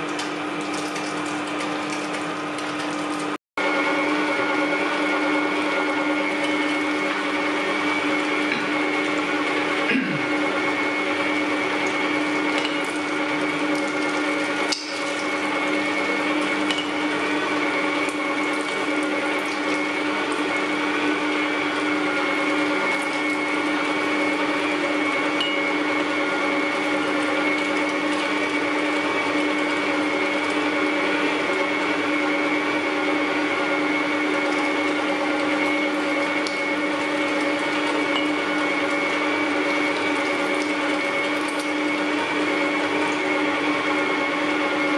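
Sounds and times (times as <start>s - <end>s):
meat grinder motor whine: 0.0s - 44.9s.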